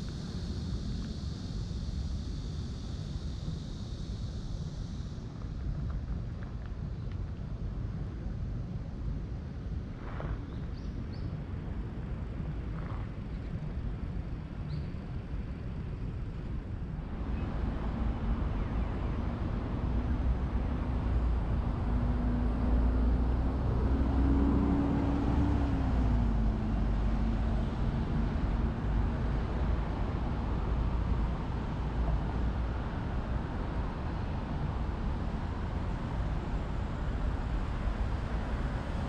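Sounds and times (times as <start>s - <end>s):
road traffic rumble: 0.0s - 39.0s
vehicle engine passing by: 17.2s - 32.9s.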